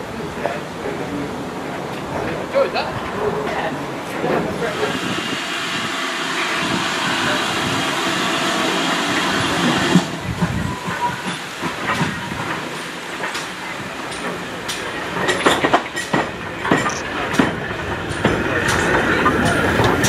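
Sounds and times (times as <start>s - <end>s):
steam hissing: 3.9s - 20.0s
train wheels clicking over rail joints: 6.5s - 20.0s.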